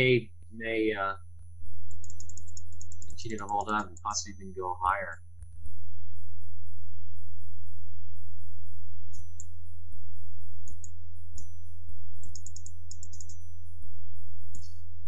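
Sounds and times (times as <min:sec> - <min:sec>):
steady low hum: 0:00.0 - 0:15.0
keyboard keystrokes: 0:12.2 - 0:13.4.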